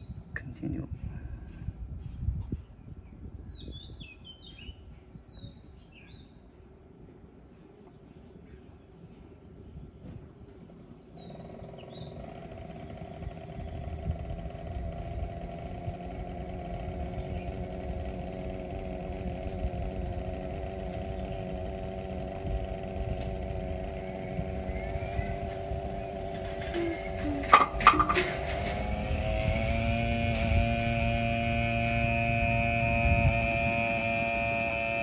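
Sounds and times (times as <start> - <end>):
small motor humming with whine: 10.4 - 35.0.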